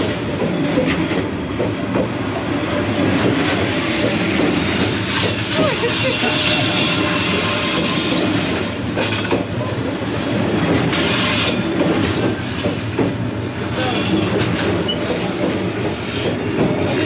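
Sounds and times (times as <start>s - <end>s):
train wheels rolling on rails: 0.0s - 17.0s.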